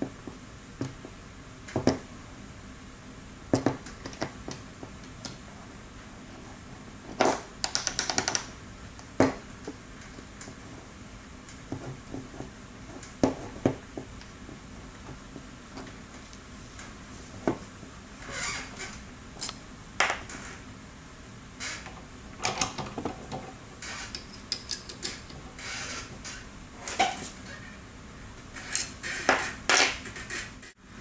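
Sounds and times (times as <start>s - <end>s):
metal parts clinking and scraping: 28.6s - 30.5s.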